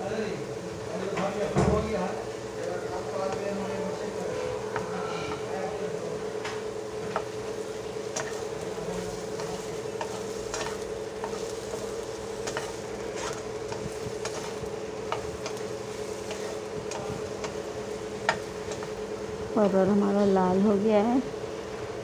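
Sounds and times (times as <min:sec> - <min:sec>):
vegetables sizzling in oil: 0:00.0 - 0:21.8
steady hum: 0:00.0 - 0:22.0
spatula scraping pan: 0:07.0 - 0:19.0.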